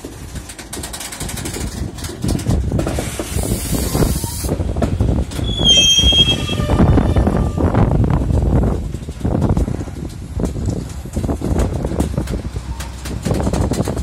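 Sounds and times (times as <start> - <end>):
train wagons rumbling: 0.0 - 14.0
wheels clicking over rail joints: 0.0 - 14.0
burst of hiss: 2.9 - 4.6
high wheel squeal: 5.4 - 8.0.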